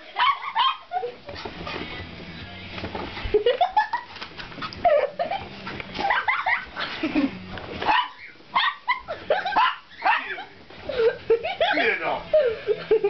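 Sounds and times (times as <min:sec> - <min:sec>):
small dog barking and yelping: 0:00.1 - 0:01.1, 0:06.0 - 0:06.8, 0:07.8 - 0:10.6.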